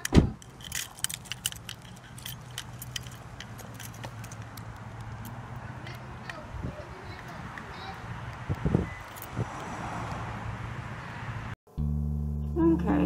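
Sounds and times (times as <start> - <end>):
car keys jingling: 0.0 - 9.8
car door thudding shut: 0.1 - 0.4.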